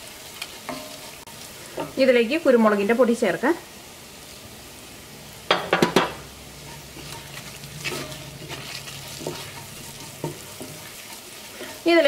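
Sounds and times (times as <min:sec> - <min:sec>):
onions sizzling in oil: 0:00.0 - 0:12.0
wooden spatula scraping a pot: 0:00.3 - 0:02.0, 0:06.6 - 0:12.0
knocks against a pot: 0:05.5 - 0:06.2.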